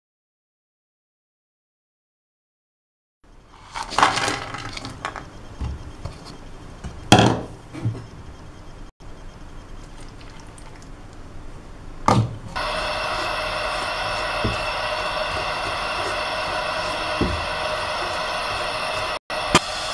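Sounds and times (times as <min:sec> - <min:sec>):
steady sizzle in hot pan: 0:12.6 - 0:19.9.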